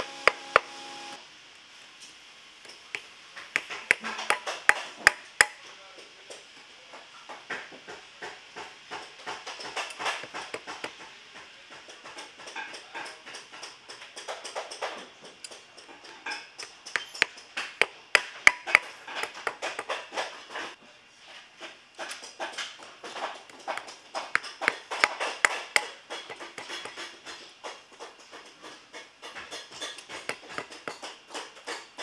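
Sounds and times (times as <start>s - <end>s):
hammer tapping tacks: 2.7s - 5.6s, 7.9s - 20.3s, 22.0s - 32.0s.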